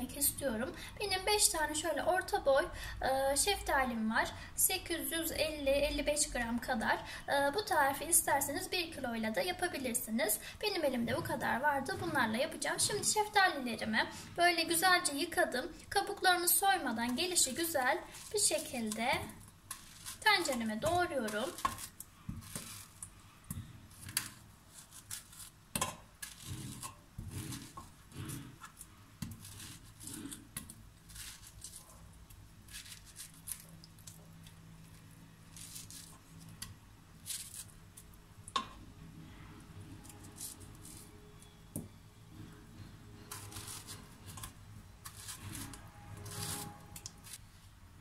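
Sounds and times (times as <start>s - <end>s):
knife cutting fruit: 17.1s - 32.1s, 43.3s - 47.4s.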